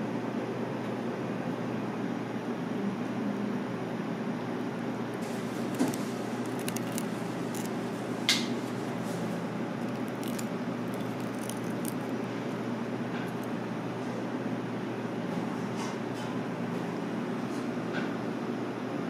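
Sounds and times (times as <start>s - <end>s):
low room hum: 0.0s - 19.0s
fried crust crackling: 5.2s - 13.6s.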